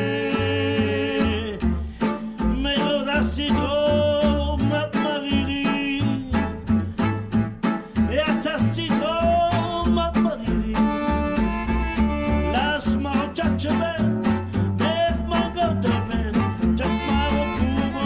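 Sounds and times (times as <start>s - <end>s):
acoustic guitars strumming: 0.0s - 18.0s
double bass notes: 0.0s - 18.0s
violin melody with sliding notes: 10.4s - 13.5s, 16.6s - 18.0s.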